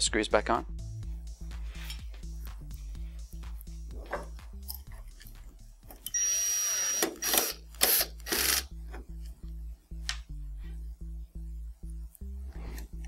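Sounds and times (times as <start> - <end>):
background music: 0.0 - 13.0
electric screwdriver whining: 6.1 - 8.7.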